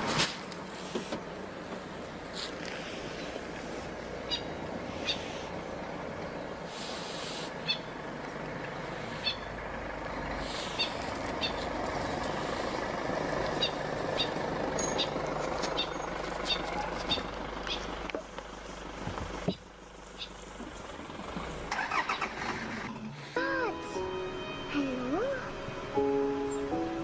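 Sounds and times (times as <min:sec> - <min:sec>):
vehicle engine idling: 0:00.0 - 0:23.6.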